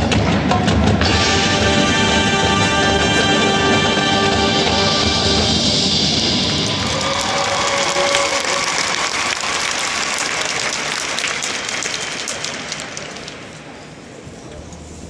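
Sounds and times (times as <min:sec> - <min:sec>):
marching band held chord: 0:00.6 - 0:09.2
audience applauding: 0:06.3 - 0:13.8.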